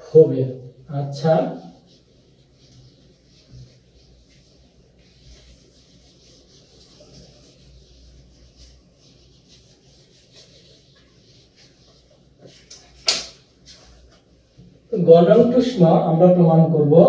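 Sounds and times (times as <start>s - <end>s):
eraser rubbing on whiteboard: 1.0s - 14.3s.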